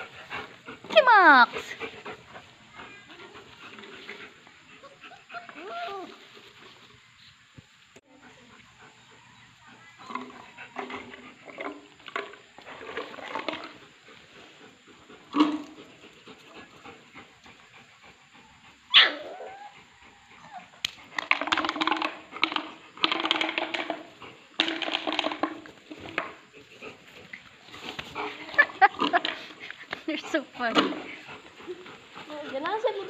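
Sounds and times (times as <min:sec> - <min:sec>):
puppies yipping and whimpering: 0:04.8 - 0:06.2, 0:18.4 - 0:20.7
puppy yelping: 0:18.9 - 0:19.8
rapid puppy yaps: 0:18.9 - 0:19.8.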